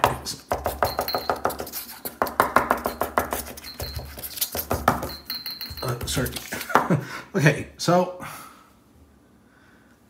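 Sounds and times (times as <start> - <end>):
marker tapping and scratching on paper: 0.0 - 6.9.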